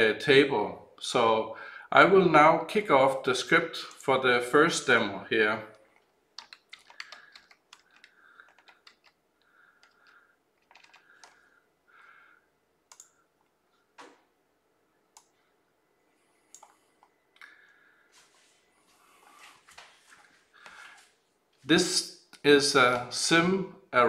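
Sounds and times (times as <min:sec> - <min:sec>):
keyboard and mouse clicks: 0:06.0 - 0:09.2, 0:09.8 - 0:11.4, 0:12.9 - 0:14.2, 0:16.5 - 0:17.5.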